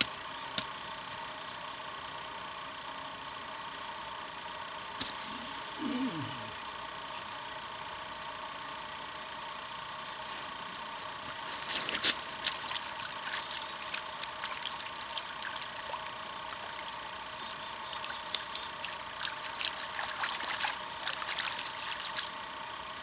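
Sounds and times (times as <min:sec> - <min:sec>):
water splashing: 0:11.6 - 0:22.4.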